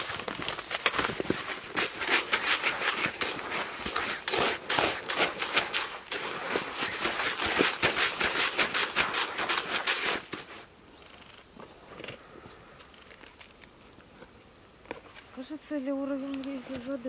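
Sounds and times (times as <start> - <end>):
dry bait stirred in a bucket: 0.0 - 10.6.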